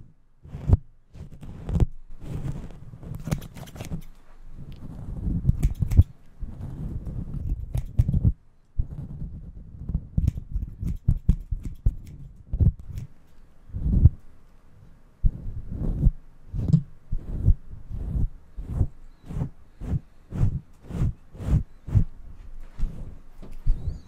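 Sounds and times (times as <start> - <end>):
rubbing and thudding on fur: 0.5 - 4.1, 15.3 - 24.0
scissors snipping: 3.1 - 4.2, 5.5 - 6.2, 7.4 - 8.3, 10.2 - 13.4, 23.4 - 24.0.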